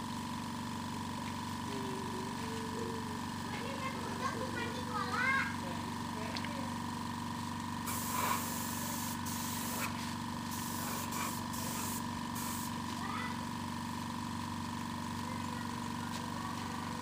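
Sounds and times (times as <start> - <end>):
air compressor humming: 0.0 - 17.0
spray gun hissing bursts: 7.8 - 12.9.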